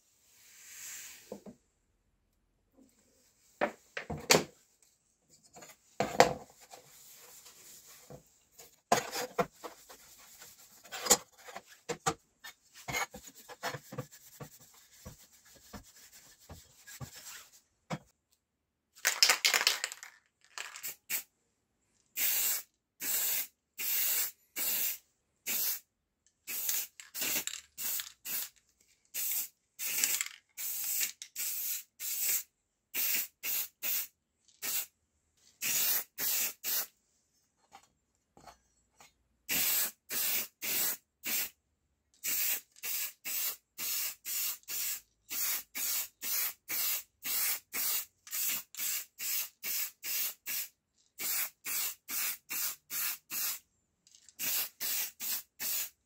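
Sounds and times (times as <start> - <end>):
rubbing and handling noises: 2.9 - 18.2
spray paint can hissing: 22.2 - 25.8, 26.5 - 28.5, 29.2 - 34.9, 35.6 - 36.9, 39.5 - 41.5, 42.2 - 53.6, 54.4 - 56.0.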